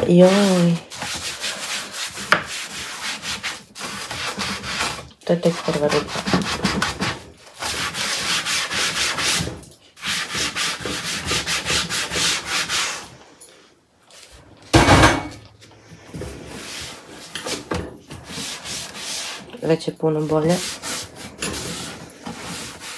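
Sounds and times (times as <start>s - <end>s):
sponge scrubbing wood: 0.0s - 13.2s, 16.0s - 22.9s
loud thump: 14.8s - 15.4s.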